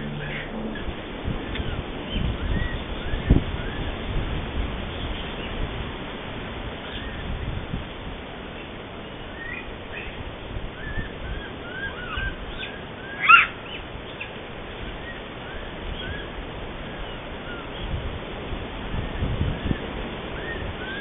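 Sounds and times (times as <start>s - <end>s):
high animal calls: 0.0s - 2.7s, 11.0s - 13.8s
background hiss: 0.0s - 21.0s.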